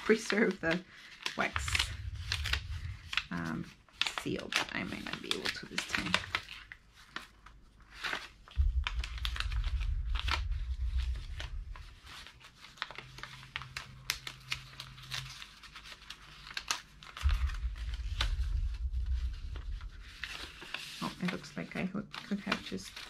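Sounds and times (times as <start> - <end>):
paper envelope crinkling: 0.0 - 8.6, 12.0 - 18.5, 19.7 - 23.0
low handling rumble: 1.4 - 4.6, 8.6 - 15.1, 17.2 - 21.7.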